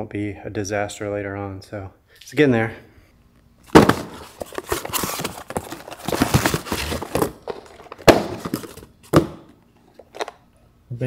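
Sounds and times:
cardboard ripping and crackling: 0:03.8 - 0:08.9.

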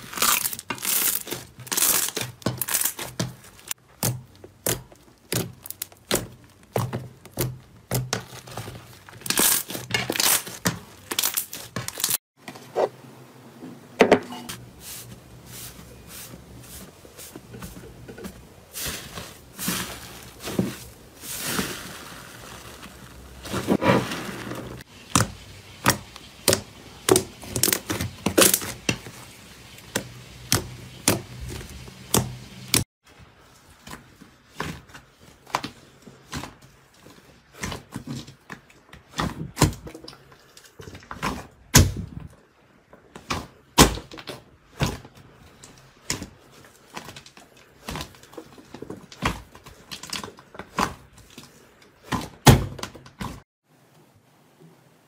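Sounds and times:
slime being kneaded: 0:00.0 - 0:12.2.

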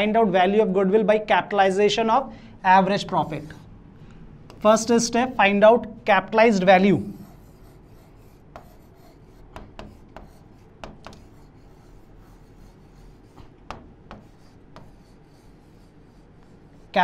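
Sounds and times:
pen rubbing on glass: 0:07.2 - 0:17.0.

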